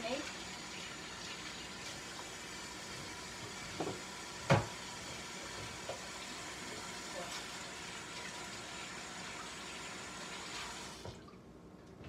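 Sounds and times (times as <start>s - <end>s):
kitchenware knocking at sink: 3.8s - 4.7s.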